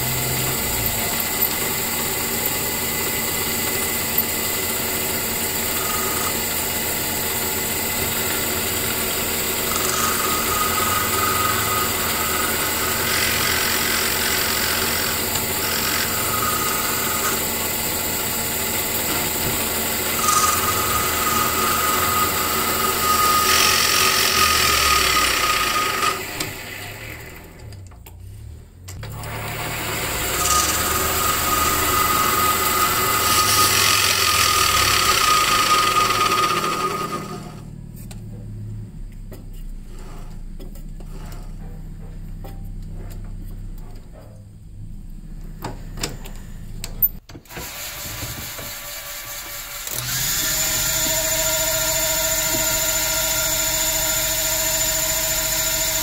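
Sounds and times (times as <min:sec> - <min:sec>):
lathe running with whine: 0:00.0 - 0:27.7, 0:29.1 - 0:37.8, 0:47.6 - 0:56.0
metal lathe cutting: 0:00.0 - 0:27.7, 0:29.1 - 0:37.6, 0:47.5 - 0:56.0.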